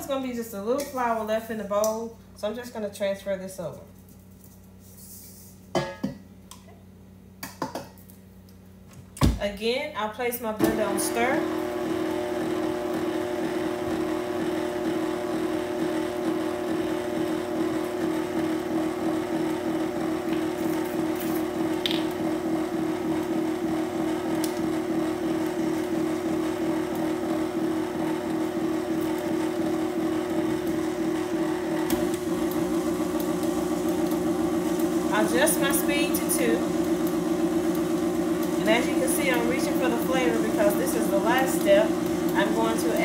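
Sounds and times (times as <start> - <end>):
electric mixer motor whir: 10.6 - 43.0.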